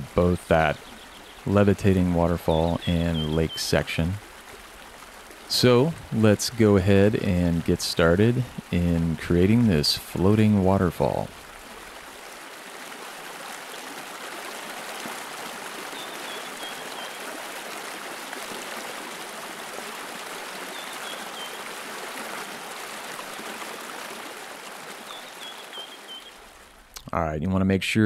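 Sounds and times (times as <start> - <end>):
running stream: 0.0 - 27.2
bird chirping: 0.5 - 1.6, 2.5 - 3.8, 25.1 - 26.4.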